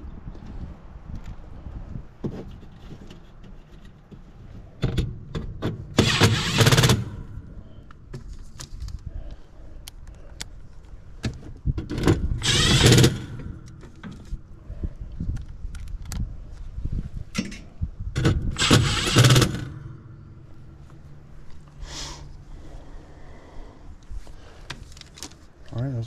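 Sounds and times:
cordless driver driving screws: 5.9s - 7.3s, 12.0s - 14.4s, 18.2s - 19.9s.

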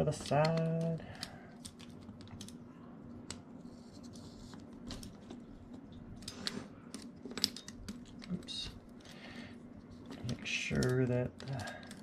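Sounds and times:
faint low hum: 0.0s - 12.0s
clicks of plastic parts handled: 0.1s - 2.6s.

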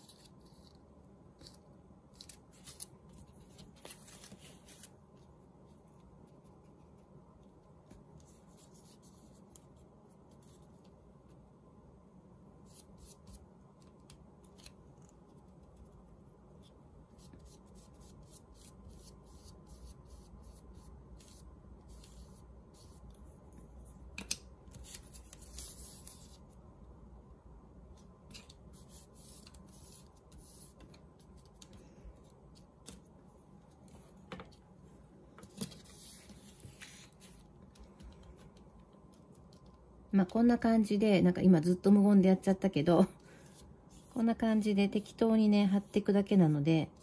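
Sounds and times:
paper rustling: 2.2s - 5.2s, 35.4s - 38.5s.

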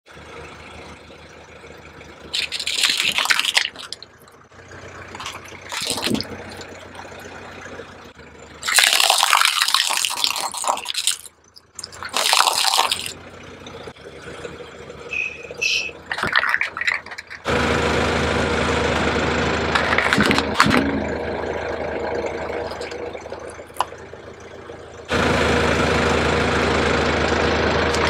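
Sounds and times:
car engine hum: 0.1s - 28.0s
plastic toys crunching under tyre: 2.3s - 4.4s, 5.0s - 7.1s, 8.6s - 13.2s, 15.6s - 17.5s, 19.7s - 21.0s.

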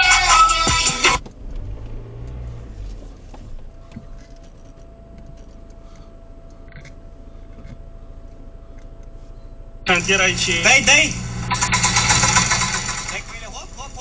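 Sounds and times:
car engine low rumble: 0.0s - 14.0s
faint steady whine: 3.2s - 14.0s.

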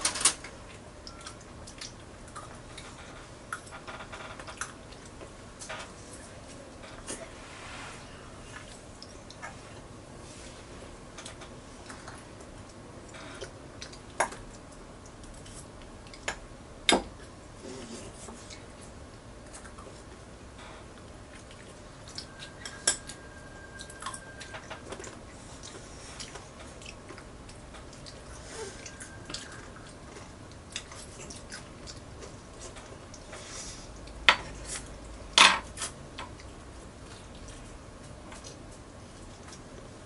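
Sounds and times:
children chewing: 21.1s - 35.0s.

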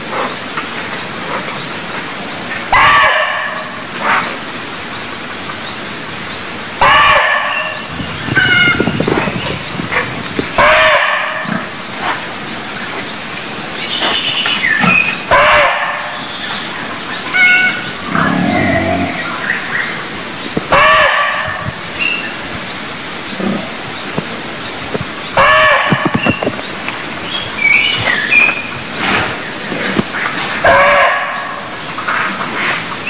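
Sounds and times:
deer barking: 2.7s - 3.6s, 6.8s - 7.8s, 15.3s - 16.1s, 30.6s - 31.5s.

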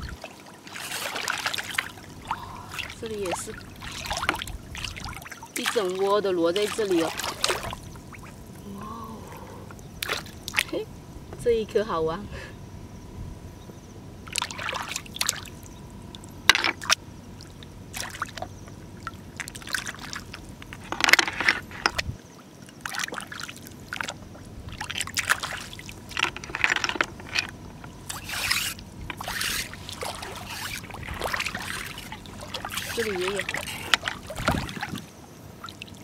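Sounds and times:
water trickling: 0.0s - 12.0s, 14.2s - 36.0s
hands splashing in water: 0.2s - 8.3s, 10.0s - 10.7s, 28.1s - 35.0s.

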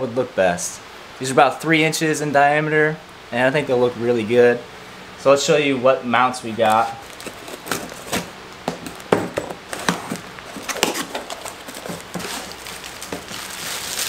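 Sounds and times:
bubble wrap rustling: 6.6s - 14.0s
tape peeled off cardboard: 6.7s - 9.1s, 9.7s - 14.0s
cardboard flaps scraping and tapping: 6.7s - 14.0s.

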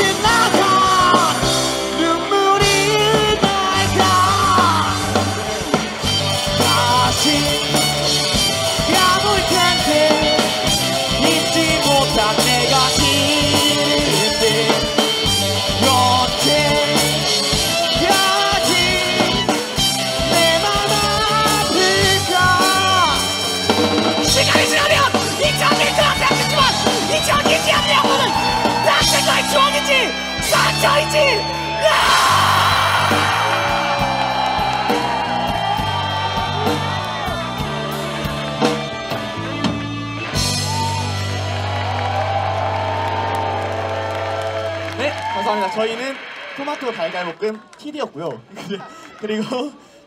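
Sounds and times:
person singing: 0.0s - 34.7s
drum kit beat: 0.0s - 43.5s
bass guitar: 0.0s - 45.4s
electric guitars: 0.0s - 47.2s
live rock band playing: 0.0s - 47.2s.

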